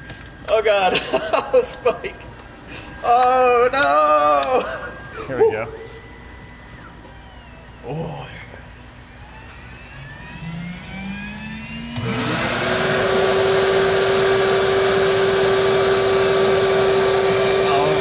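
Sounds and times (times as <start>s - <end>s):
cnc spindle whine: 0.1s - 18.0s
vacuum rushing and humming: 8.5s - 18.0s.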